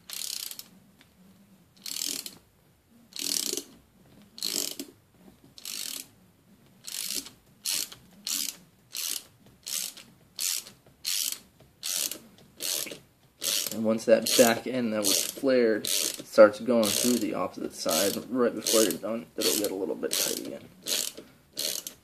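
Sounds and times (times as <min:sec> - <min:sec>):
ratchet wrench clicking: 0:00.1 - 0:00.7, 0:01.8 - 0:02.4, 0:03.1 - 0:03.8, 0:04.4 - 0:04.9, 0:05.6 - 0:06.1, 0:06.8 - 0:16.2, 0:16.8 - 0:17.3, 0:17.9 - 0:22.0.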